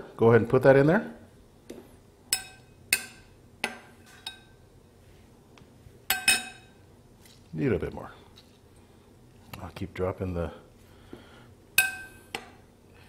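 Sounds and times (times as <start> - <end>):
spoon clinking on ceramic bowl: 6.1 - 6.7.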